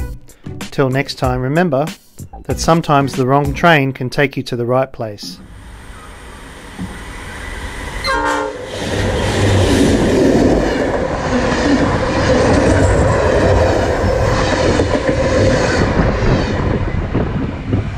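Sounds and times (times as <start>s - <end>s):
train rumbling past: 5.3s - 17.9s
train horn toot: 7.9s - 9.6s.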